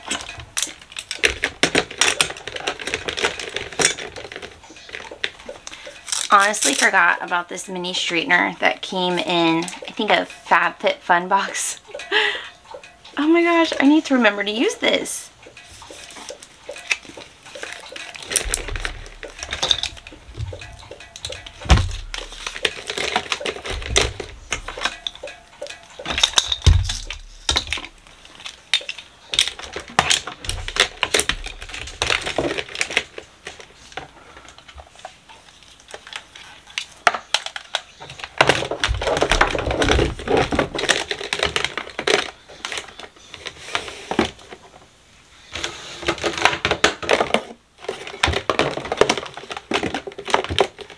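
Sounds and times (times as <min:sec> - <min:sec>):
hair tools clattering in drawer: 0:16.8 - 0:20.2
heavy thumps: 0:18.4 - 0:28.0.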